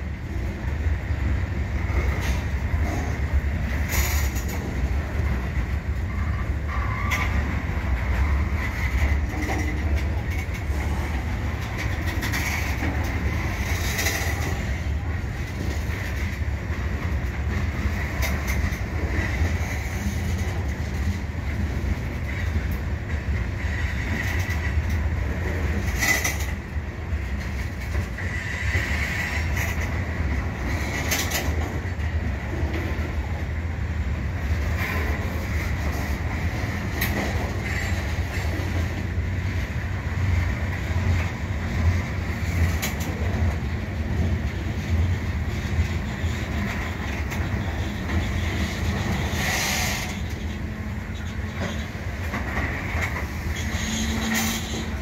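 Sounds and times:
train wheels rumbling on rails: 0.0 - 55.0
wheel squeal: 53.5 - 54.9.

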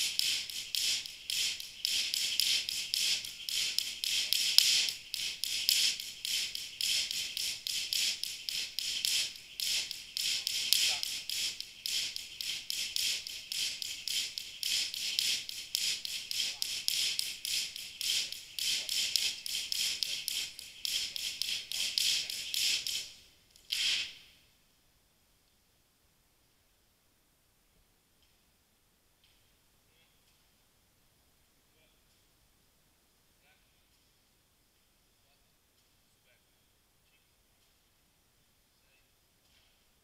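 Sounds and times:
jump rope ticking on the floor: 0.0 - 24.1.

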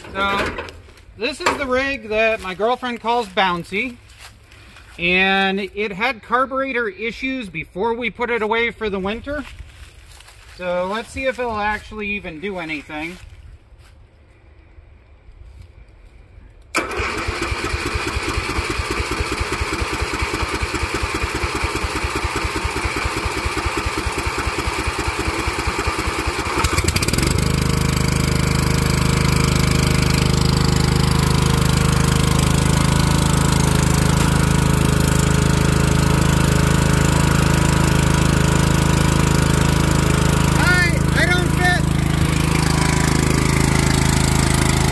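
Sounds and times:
small engine cranking and starting: 16.8 - 44.9.

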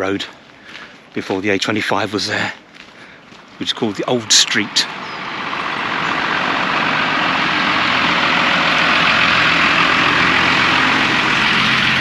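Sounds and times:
lorry engine idling: 3.6 - 12.0.

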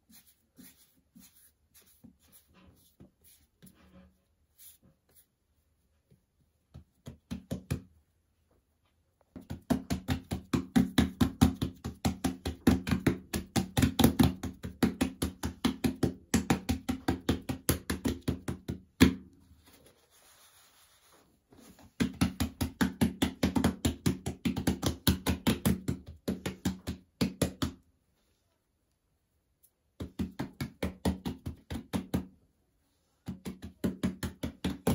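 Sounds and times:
hands patting dough: 6.1 - 8.1, 9.2 - 27.9, 29.7 - 32.5, 33.2 - 34.9.

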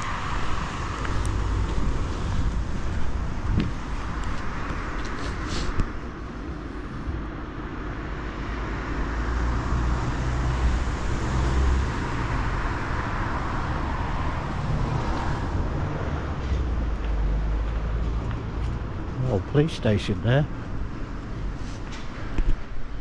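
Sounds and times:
car passing: 0.0 - 23.0
traffic noise: 0.0 - 23.0.

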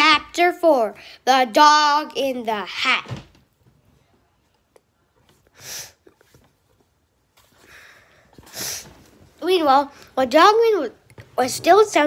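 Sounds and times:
person sniffing: 5.5 - 6.4, 7.6 - 9.0.

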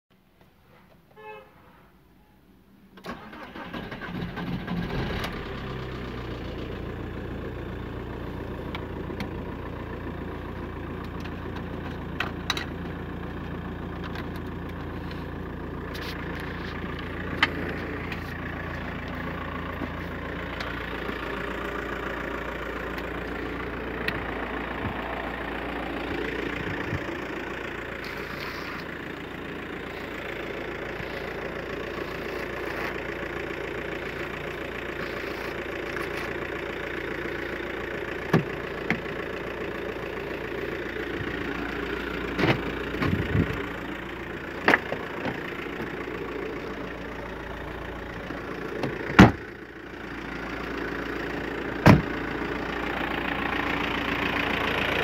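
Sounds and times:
diesel engine idling: 2.9 - 55.0
starter motor cranking: 3.0 - 5.5.

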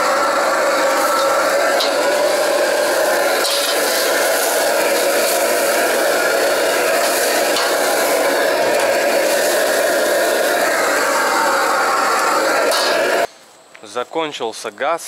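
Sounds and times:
gas burner roaring: 0.0 - 13.3
water tap running: 0.0 - 13.3
metal ladle scraping wok: 0.8 - 10.6
wok brush scrubbing: 0.8 - 11.1.

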